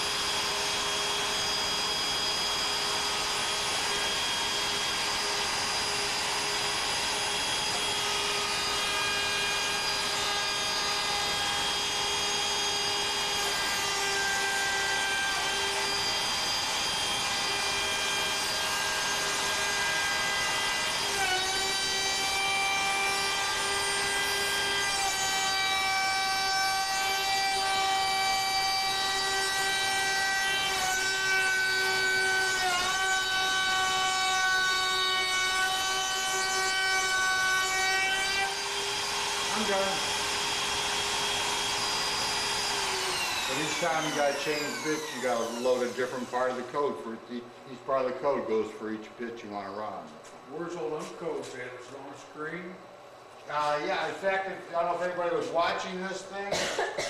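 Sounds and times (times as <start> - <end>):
machine whining tones: 0.0 - 46.7
router cutting wood: 0.0 - 47.3.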